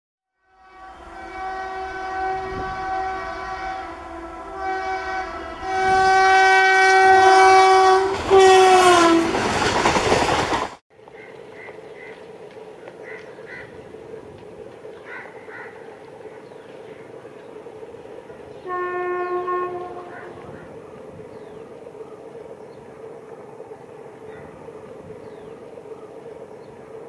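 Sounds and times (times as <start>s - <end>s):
train horn blasts: 0.3s - 9.6s, 18.6s - 20.7s
train rushing past: 0.6s - 27.0s
bird calls: 11.0s - 27.0s.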